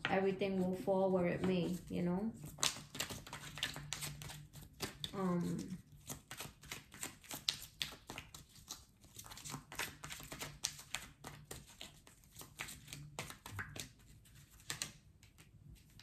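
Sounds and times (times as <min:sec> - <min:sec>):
cards being shuffled: 0:01.4 - 0:16.0.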